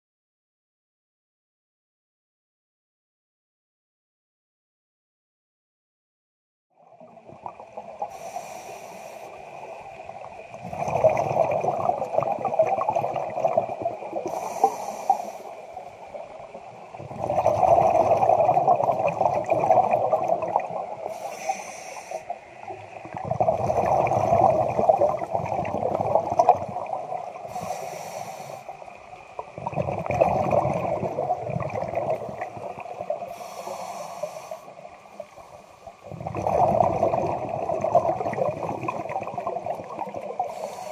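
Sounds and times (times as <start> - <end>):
high hisses: 8.1 - 9.4, 14.3 - 15.6, 21.1 - 22.4, 27.5 - 28.8, 33.3 - 34.8
bubbling regulator exhalations: 10.5 - 15.6, 16.9 - 21.8, 23.0 - 28.1, 29.4 - 34.5, 36.0 - 40.9.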